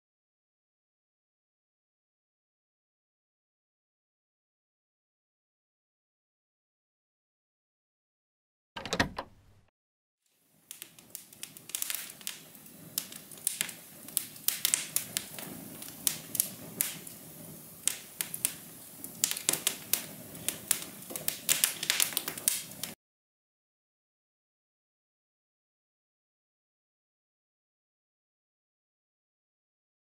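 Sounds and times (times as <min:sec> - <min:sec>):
short rattle: 0:08.8 - 0:09.6
wood fire crackling and popping: 0:10.6 - 0:23.0.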